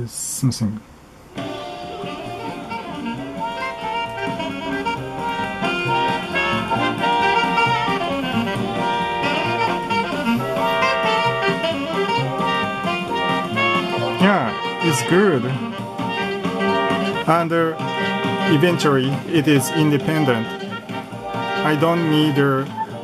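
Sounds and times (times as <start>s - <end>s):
music through small loudspeaker: 1.3s - 23.0s.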